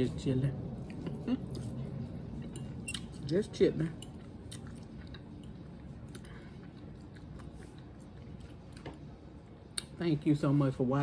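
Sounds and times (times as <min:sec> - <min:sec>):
close-up chewing: 0:04.0 - 0:09.0.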